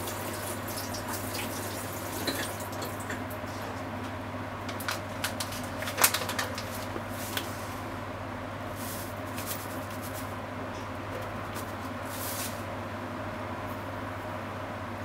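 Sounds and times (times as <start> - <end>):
foil packet crinkling: 4.7 - 7.5.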